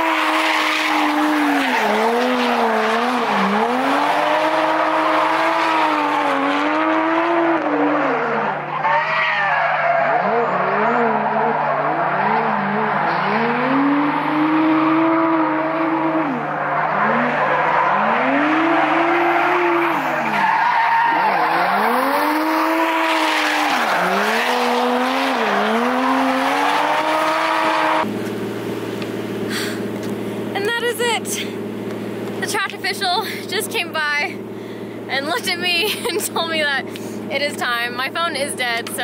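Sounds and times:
tyres squealing on asphalt: 0.0 - 28.1
car engine revving: 0.0 - 38.0.

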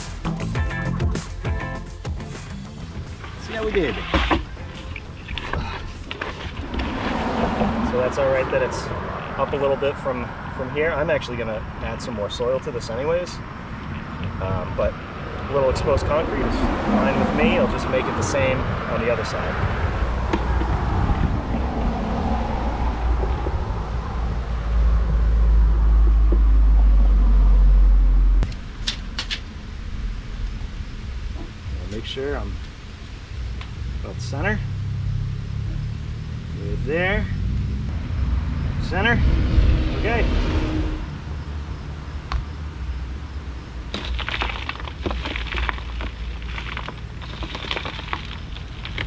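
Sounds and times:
gritty crackle of soil and stones: 2.9 - 21.3, 43.6 - 49.0
steady low rumble: 14.0 - 36.7.

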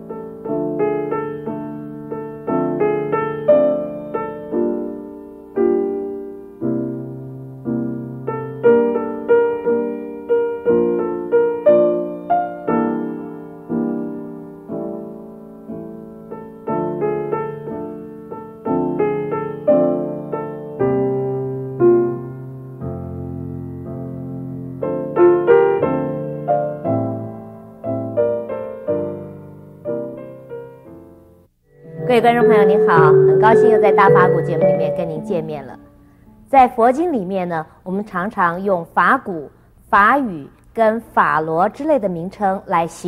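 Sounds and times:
slow gentle piano music: 0.0 - 37.0.

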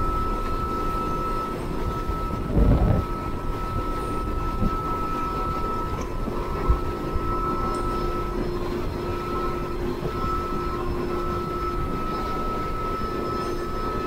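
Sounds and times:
motorboat engine drone with whine: 0.0 - 14.0
wind and water rushing: 2.5 - 3.1.

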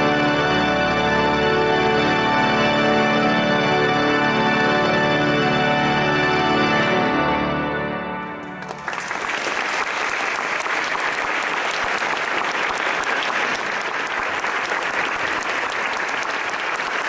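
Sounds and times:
pipe organ chord: 0.0 - 9.3
audience clapping: 8.2 - 17.0.

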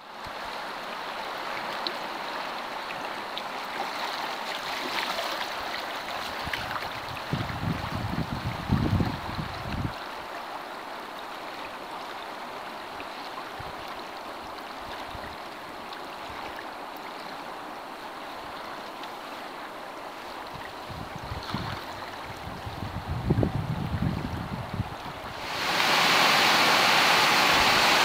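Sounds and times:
river water lapping around canoe: 0.2 - 23.0, 25.0 - 28.0
wind buffeting microphone: 6.4 - 10.0, 20.5 - 26.0.

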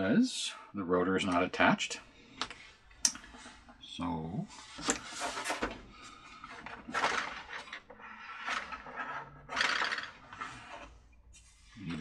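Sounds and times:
tools scraping and clattering: 4.5 - 12.0.

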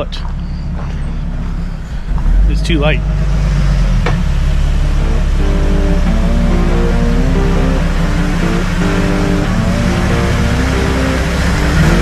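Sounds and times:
car engine running: 0.0 - 12.0
background music: 4.8 - 12.0.

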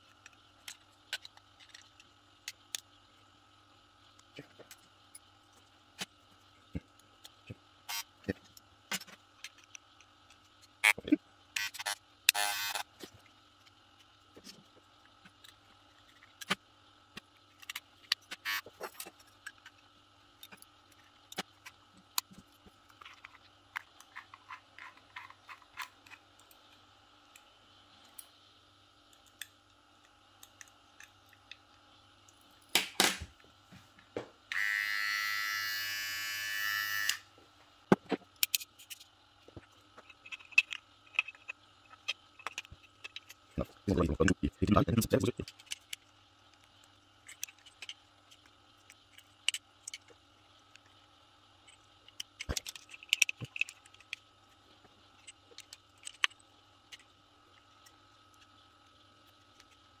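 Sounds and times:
hair clipper motor buzzing: 12.3 - 12.8, 34.5 - 37.2
plastic and metal parts clicking: 45.3 - 50.1, 51.6 - 54.2, 55.2 - 57.1.

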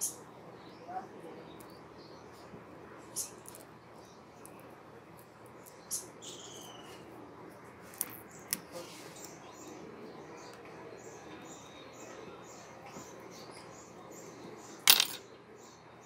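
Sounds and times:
high chirping: 5.7 - 7.0.

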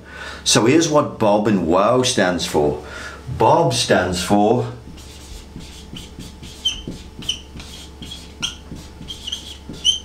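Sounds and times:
marker rubbing on whiteboard: 4.8 - 10.0
marker squeaking: 4.9 - 10.0.

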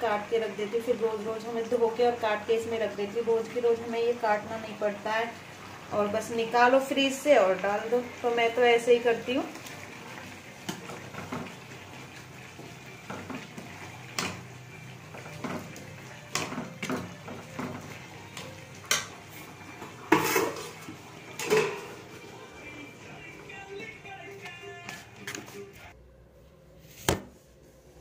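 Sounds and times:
pots and utensils clattering: 9.6 - 22.3.

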